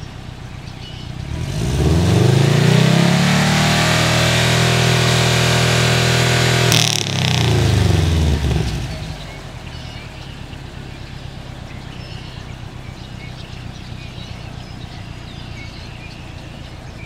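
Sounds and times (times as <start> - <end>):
car engine revving down to idle: 0.0 - 17.0.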